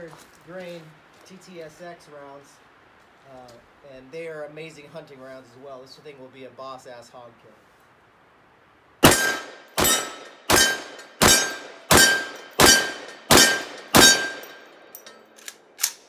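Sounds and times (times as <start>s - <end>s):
rifle shots: 9.0s - 14.6s.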